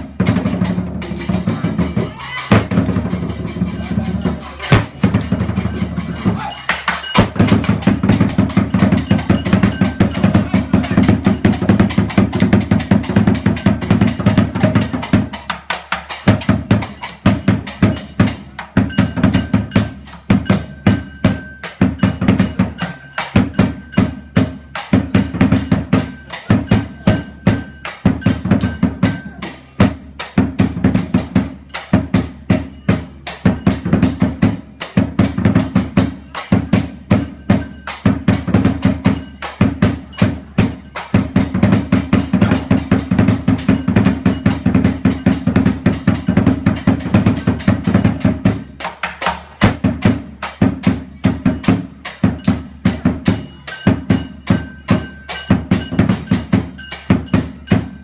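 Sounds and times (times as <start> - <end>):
big drum beating fast: 0.0 - 58.0
cymbals clashing: 0.0 - 58.0.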